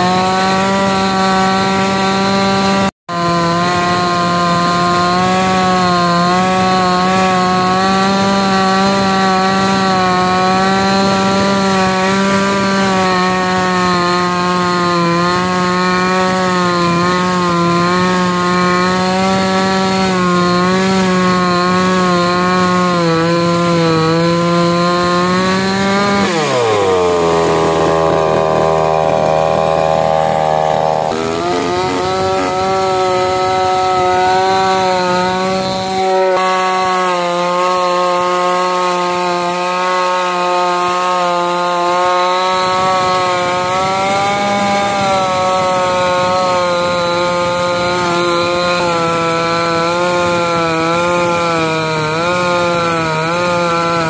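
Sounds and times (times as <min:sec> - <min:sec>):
chainsaw cutting log: 0:00.0 - 0:54.0.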